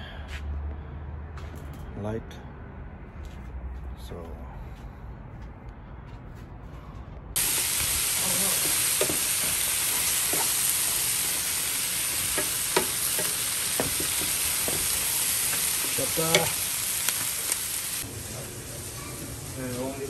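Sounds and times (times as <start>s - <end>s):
food sizzling in frying pan: 7.4s - 20.0s.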